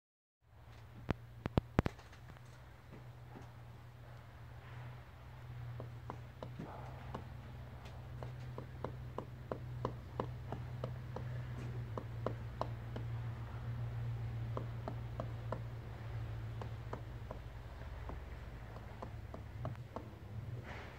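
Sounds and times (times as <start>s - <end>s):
steady low hum: 0.5s - 20.9s
woodpecker knocking on wood: 5.4s - 20.4s.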